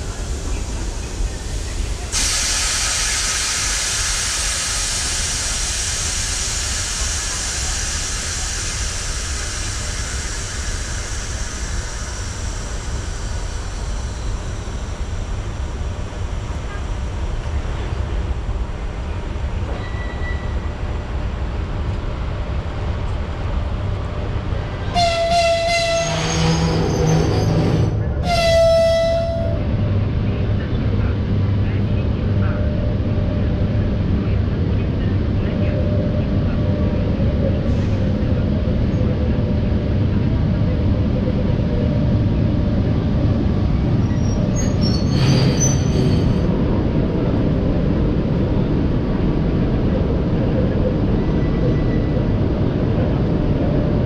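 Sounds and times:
electric locomotive rumble: 0:00.0 - 0:54.0
locomotive horn blasts: 0:24.9 - 0:26.9, 0:28.2 - 0:29.6.

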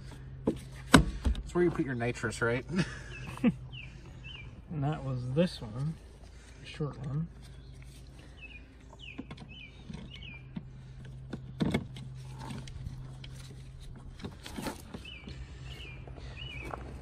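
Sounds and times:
steady low hum: 0:00.0 - 0:17.0
small bird chirping: 0:03.1 - 0:05.0, 0:07.4 - 0:10.6.

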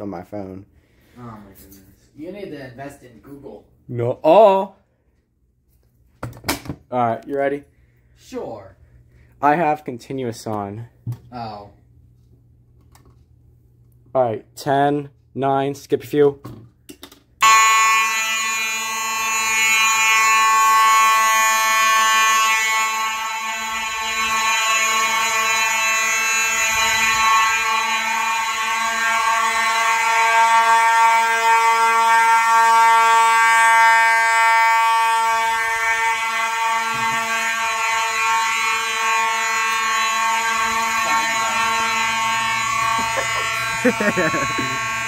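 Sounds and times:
fire alarm horns blaring: 0:07.0 - 0:12.3, 0:17.4 - 0:45.0.

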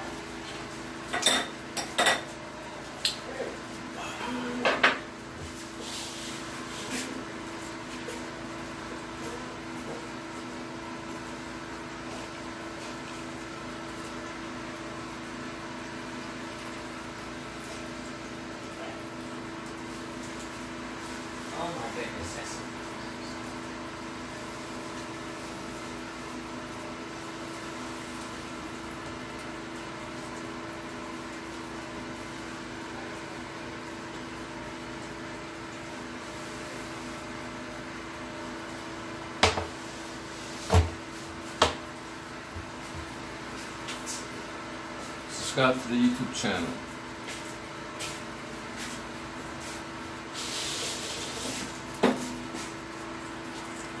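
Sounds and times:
machine humming and hissing: 0:00.0 - 0:54.0
cloth rubbing on stone countertop: 0:05.4 - 0:07.2.

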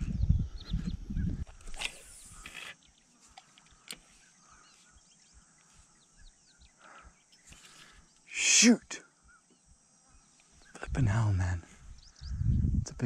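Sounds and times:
faint bird chirps: 0:00.0 - 0:13.0.

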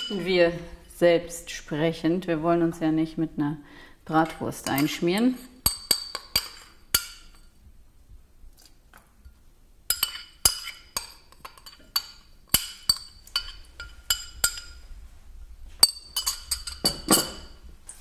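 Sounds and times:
metal spoon clinking glass bowl: 0:04.2 - 0:07.5, 0:09.9 - 0:14.8, 0:15.8 - 0:17.6.

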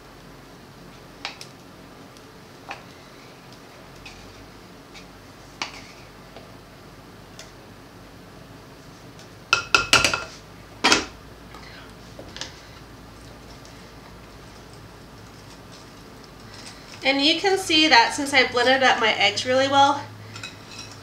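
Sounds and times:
kitchenware clinking: 0:20.3 - 0:21.0.

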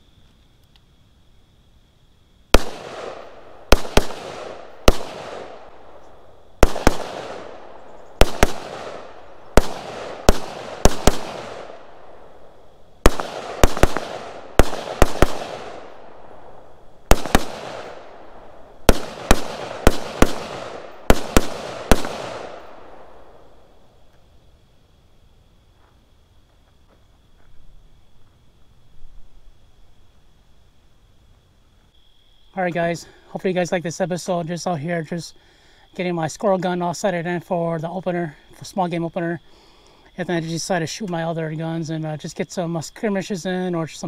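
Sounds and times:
rifle shots echoing: 0:02.5 - 0:23.6.

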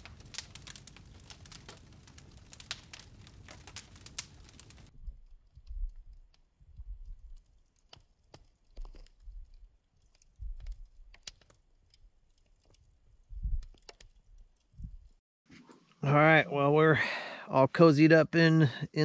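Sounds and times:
campfire crackling and popping: 0:00.0 - 0:15.2.

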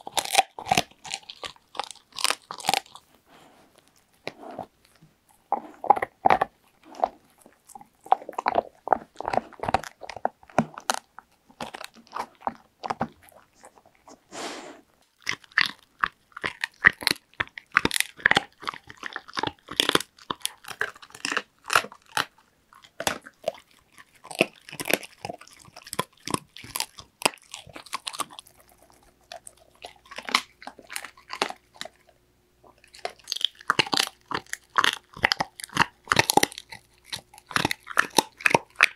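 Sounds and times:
dog crunching a chew treat: 0:00.0 - 0:14.2, 0:15.0 - 0:38.9.

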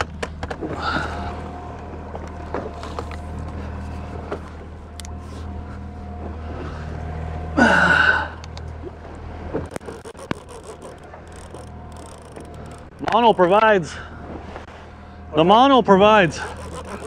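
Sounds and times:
sharp clicks and knocks: 0:00.0 - 0:00.7, 0:09.6 - 0:13.7, 0:16.4 - 0:17.0
boat motor humming: 0:00.0 - 0:17.0
fishing reel rasp: 0:09.6 - 0:13.6, 0:16.2 - 0:17.0.

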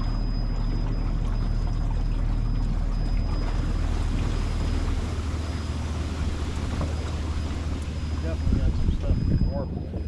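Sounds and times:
boat motor humming: 0:00.0 - 0:10.0
wind noise on microphone: 0:06.3 - 0:10.0.

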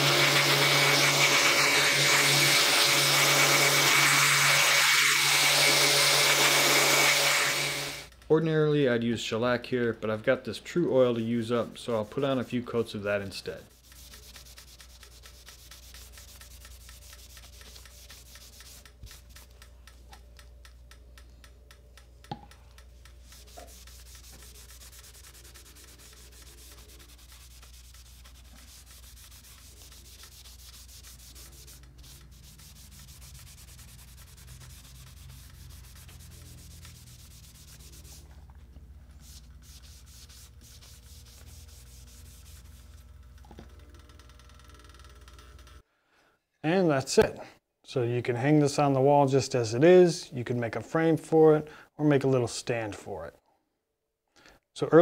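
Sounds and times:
cloth rubbing on wood: 0:13.7 - 0:19.5, 0:23.2 - 0:38.5, 0:39.1 - 0:43.0.

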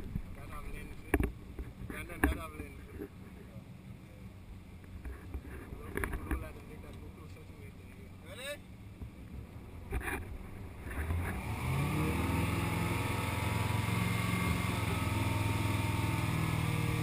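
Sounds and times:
boat engine accelerating: 0:09.4 - 0:17.0.

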